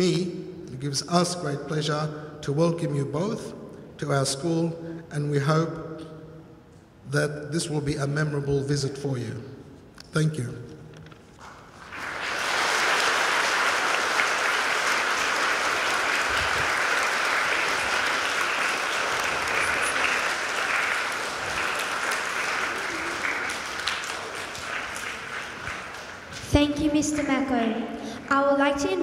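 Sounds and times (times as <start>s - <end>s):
audience applauding: 11.4s - 26.5s.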